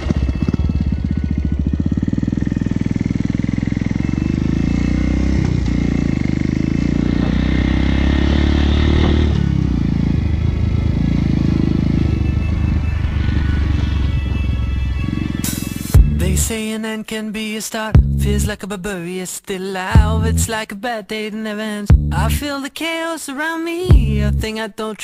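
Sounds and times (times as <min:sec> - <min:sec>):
small motorcycle engine running: 0:00.0 - 0:16.5.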